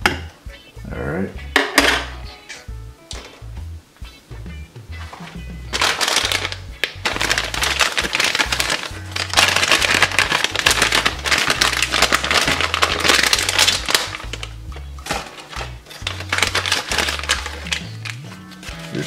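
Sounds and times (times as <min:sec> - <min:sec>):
background music with bass line: 0:00.0 - 0:19.0
plastic bag crinkling: 0:05.7 - 0:19.0.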